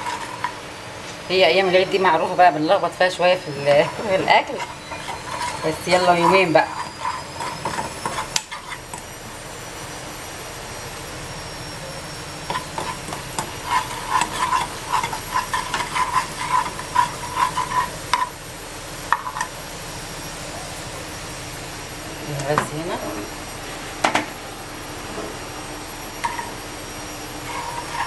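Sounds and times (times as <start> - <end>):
metal spoon scraping a pan: 0.0 - 0.6, 3.0 - 9.1, 12.4 - 18.4, 19.1 - 19.6, 26.2 - 26.6, 27.3 - 28.0
garlic sizzling in fat: 0.0 - 28.0.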